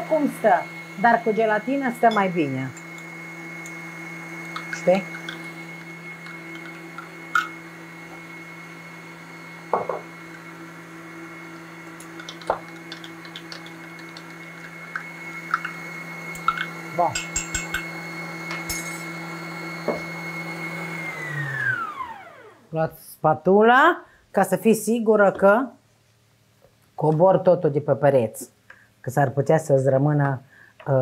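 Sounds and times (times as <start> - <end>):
stand mixer whining: 0.0 - 22.7
utensils clinking against bowl: 4.5 - 5.6, 6.2 - 7.6, 12.0 - 19.2.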